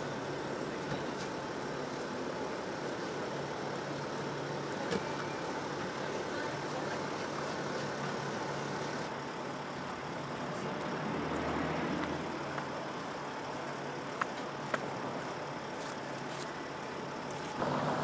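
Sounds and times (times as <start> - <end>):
low engine hum: 0.0 - 18.0
street traffic road noise: 0.0 - 18.0.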